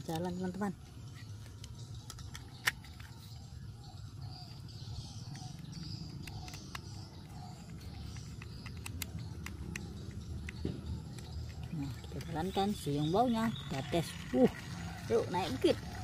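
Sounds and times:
birds calling: 0:00.0 - 0:16.0
low outdoor hum: 0:00.0 - 0:16.0
screwdriver clicking on plastic: 0:05.3 - 0:12.5.

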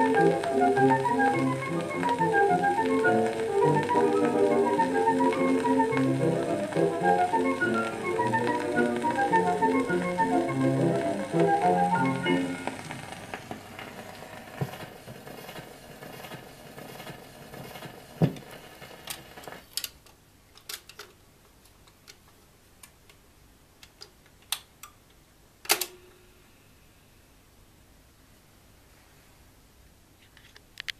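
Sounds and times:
record crackle: 0:00.0 - 0:26.0, 0:30.2 - 0:30.9
record player surface hiss: 0:00.0 - 0:30.9.

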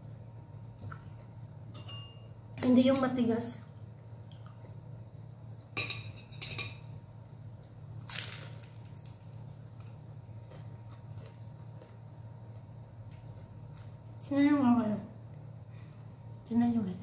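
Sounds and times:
low steady hum: 0:00.0 - 0:17.0
crunchy bite: 0:08.0 - 0:09.9.

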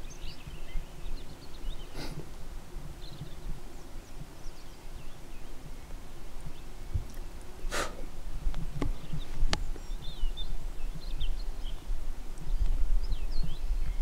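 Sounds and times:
songbirds chirping: 0:00.0 - 0:14.0
breathy burst of noise: 0:07.7 - 0:08.1.

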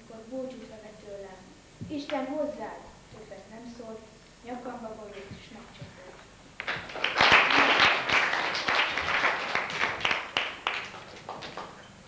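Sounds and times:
audience applauding: 0:06.6 - 0:11.9.

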